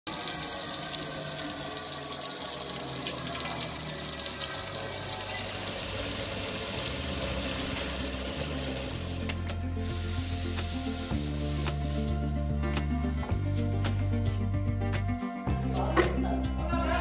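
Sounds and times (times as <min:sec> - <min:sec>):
tap water pouring into metal pot: 0:00.1 - 0:12.2.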